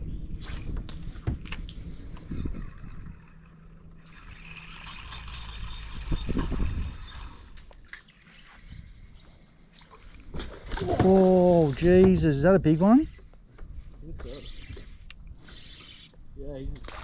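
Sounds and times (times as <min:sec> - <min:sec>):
electric trolling motor hum: 0:00.1 - 0:09.6
fishing reel whirring: 0:01.4 - 0:09.1, 0:12.7 - 0:16.2.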